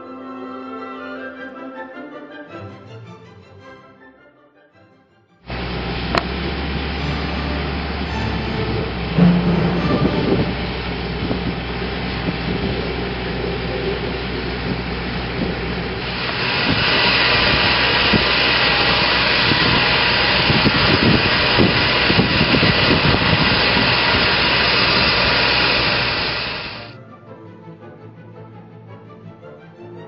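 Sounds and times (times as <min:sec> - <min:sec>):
machine whirring with hiss: 0:10.4 - 0:26.9.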